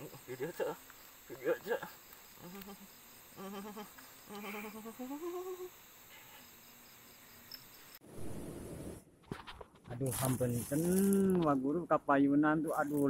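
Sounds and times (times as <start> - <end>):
night insects chirping: 0.0 - 9.0
man humming: 1.5 - 6.4.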